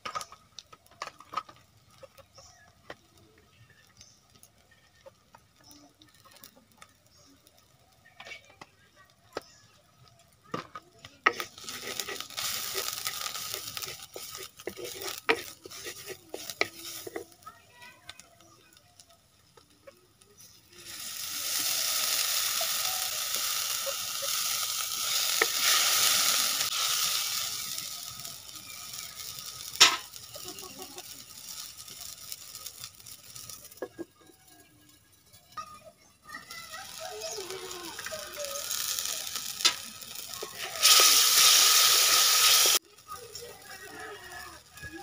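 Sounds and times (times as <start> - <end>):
chillies sizzling in oil: 0.0 - 45.0
loud sizzle of poured liquid: 1.7 - 45.0
spatula scraping pan: 11.2 - 17.4, 20.4 - 34.0, 37.3 - 42.8.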